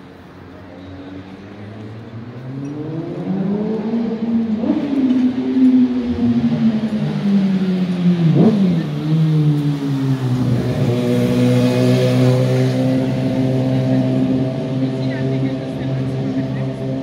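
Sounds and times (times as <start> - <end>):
vehicle engine revving: 1.7 - 17.0.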